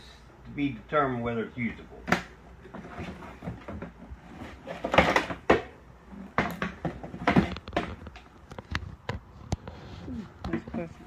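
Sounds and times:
plastic clatter: 0:02.0 - 0:09.7.

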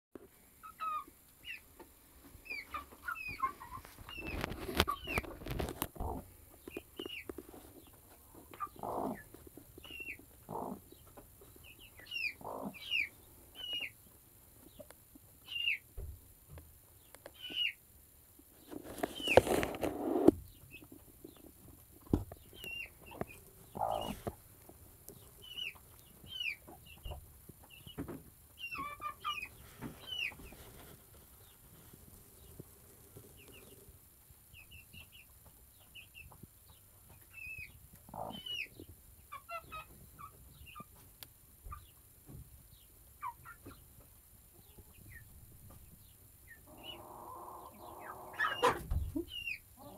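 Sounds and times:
hen clucking: 0:00.6 - 0:15.8, 0:18.7 - 0:30.8, 0:37.1 - 0:41.1, 0:43.1 - 0:44.0, 0:44.6 - 0:49.9
chicks peeping: 0:00.6 - 0:49.9.

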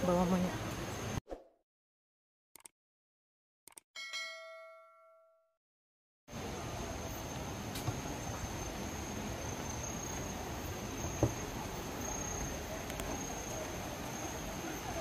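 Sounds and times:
insects droning: 0:06.3 - 0:15.0.

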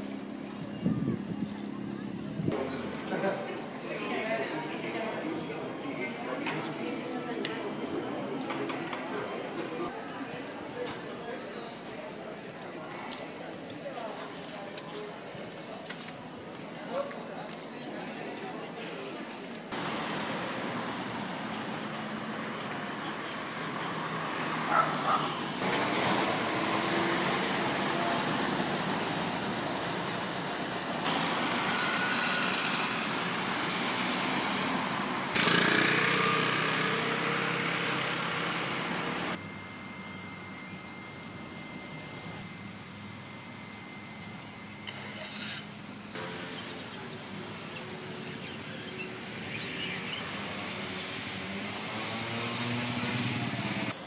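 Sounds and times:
car traffic on street: 0:19.3 - 0:39.5, 0:44.8 - 0:54.0.

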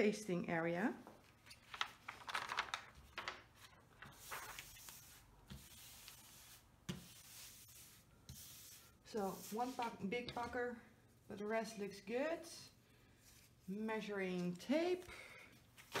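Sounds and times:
canvas crinkling: 0:01.7 - 0:04.6
hands rubbing on canvas: 0:04.2 - 0:10.0.

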